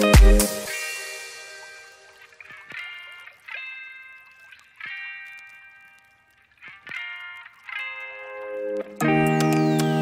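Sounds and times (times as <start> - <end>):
plucked notes ringing: 6.8 - 10.0.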